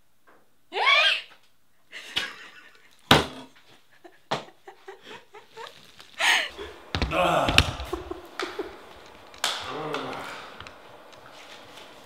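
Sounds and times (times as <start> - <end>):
person laughing wheezily: 4.0 - 8.9.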